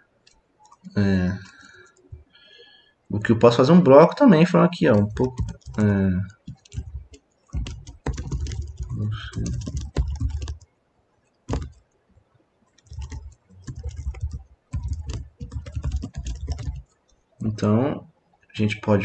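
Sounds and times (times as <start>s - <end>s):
computer keyboard typing: 0.6s - 2.3s, 4.8s - 10.7s, 11.5s - 11.9s, 12.7s - 17.2s.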